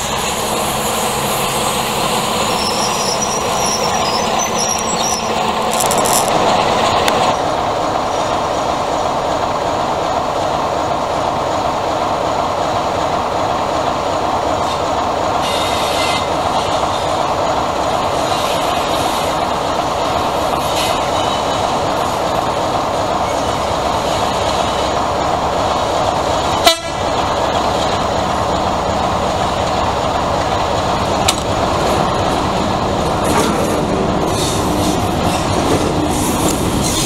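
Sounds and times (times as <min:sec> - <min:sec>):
diesel locomotive engine running: 0:00.0 - 0:37.0.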